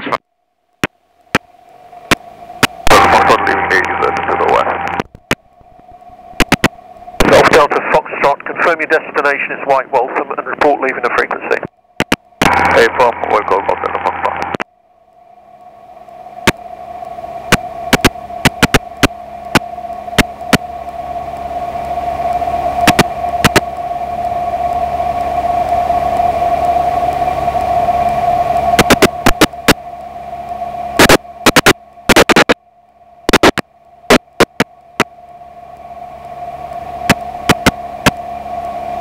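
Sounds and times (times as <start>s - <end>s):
constant whine: 0.0s - 39.0s
sharp crackling clicks: 0.7s - 2.9s, 3.8s - 7.4s, 12.0s - 12.6s, 14.3s - 22.0s, 22.8s - 23.9s, 28.8s - 35.9s, 36.7s - 38.7s
intercom hiss: 2.8s - 5.0s, 7.2s - 11.7s, 12.4s - 14.6s.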